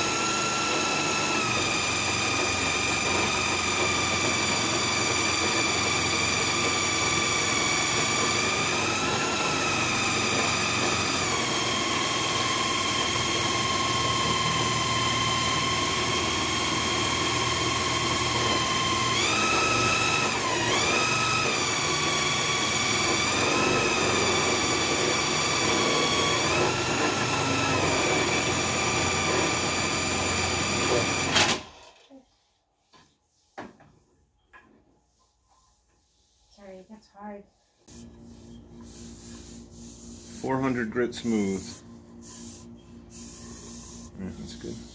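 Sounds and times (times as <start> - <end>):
power drill motor whine: 0.0 - 32.0.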